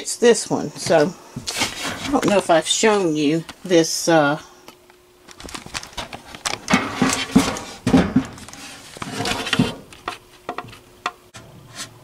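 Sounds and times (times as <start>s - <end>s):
handling noise: 5.2s - 11.3s
wooden cover knocking and scraping: 6.6s - 10.8s.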